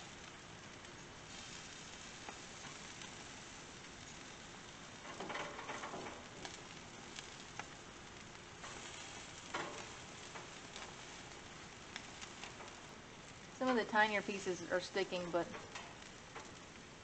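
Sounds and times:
fish sizzling on a grill: 0.0s - 17.0s
metal tongs scraping a grate: 5.0s - 6.5s, 8.6s - 11.0s.

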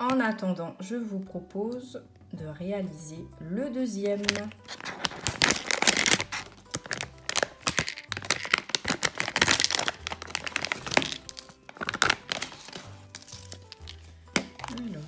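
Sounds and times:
plastic packet crinkling: 4.0s - 15.0s.

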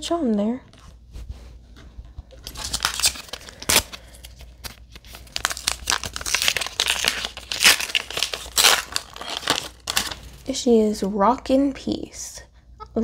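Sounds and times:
sharp packaging crackle: 2.4s - 10.5s
toy packaging crinkling: 2.4s - 10.5s.

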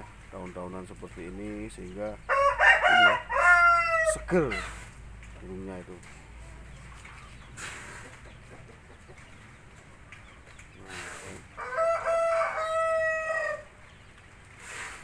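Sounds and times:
rooster crowing: 2.3s - 4.7s, 11.6s - 13.7s.

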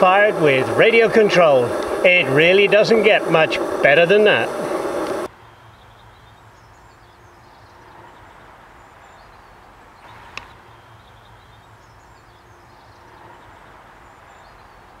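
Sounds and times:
sharp click: 10.3s - 10.6s.

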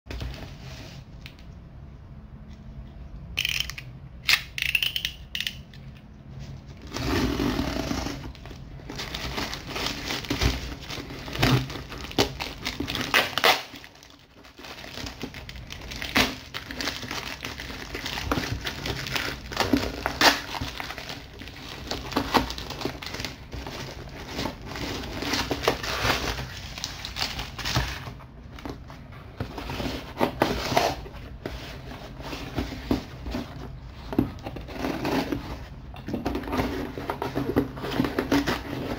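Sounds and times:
plastic bag crinkling and tearing: 8.4s - 28.0s.

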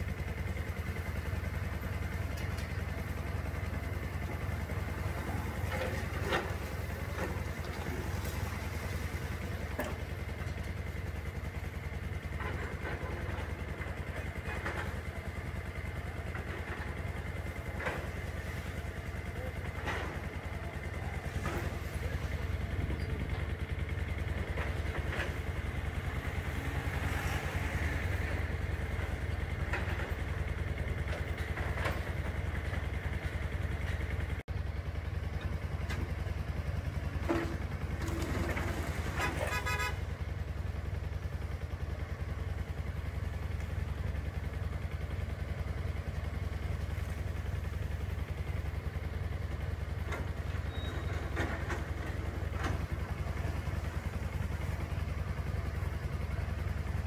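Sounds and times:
heavy machinery engine rumble: 0.0s - 57.0s
passing traffic: 25.0s - 29.4s
short vehicle horn toot: 39.3s - 40.1s.

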